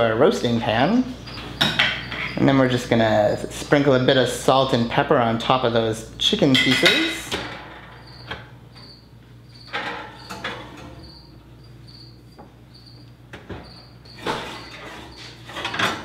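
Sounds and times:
glass dish knocking and clattering: 6.5 - 7.1.

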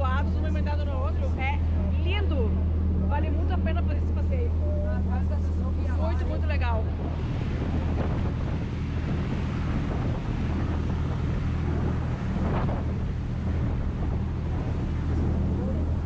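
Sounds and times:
motorboat engine humming: 0.0 - 16.0
wind buffeting the microphone: 0.0 - 16.0
rush of churning wake: 5.8 - 16.0.

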